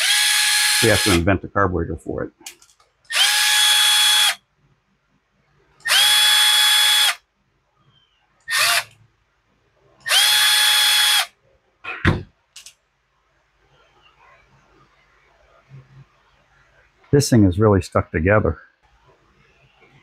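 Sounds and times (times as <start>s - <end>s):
cordless driver whining: 3.1s - 4.4s, 8.5s - 8.9s.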